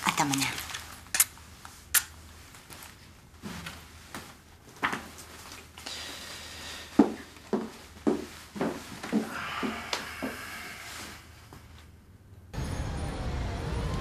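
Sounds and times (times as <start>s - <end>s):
footsteps on hard floor: 7.0s - 10.4s.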